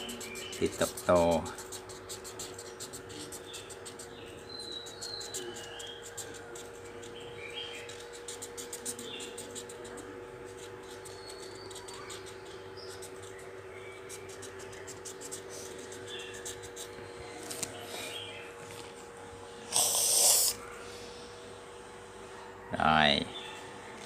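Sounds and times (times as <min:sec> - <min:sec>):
marker scratching on paper: 0:00.0 - 0:17.7, 0:19.7 - 0:20.6
steady low hum: 0:00.0 - 0:24.0.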